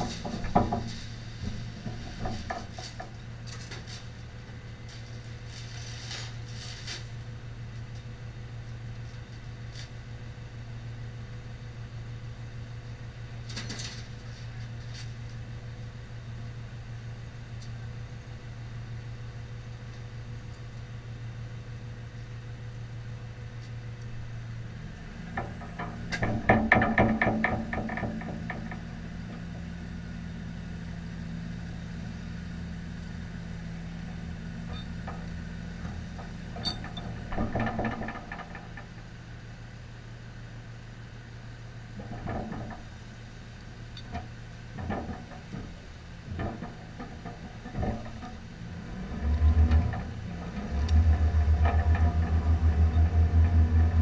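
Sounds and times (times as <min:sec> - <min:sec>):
low engine sound: 0:00.0 - 0:54.0
knocks: 0:25.4 - 0:28.9
vehicle engine idling: 0:42.8 - 0:54.0.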